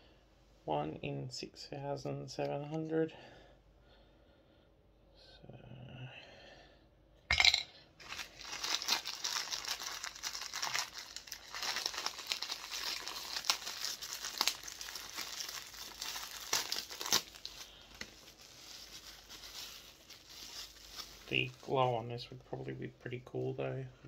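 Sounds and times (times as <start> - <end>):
plastic wrapping crinkling: 8.0 - 21.8.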